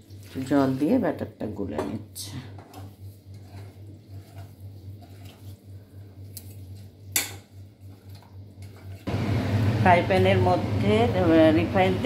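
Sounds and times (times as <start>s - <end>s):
spoon stirring in steel pot: 1.8s - 9.1s.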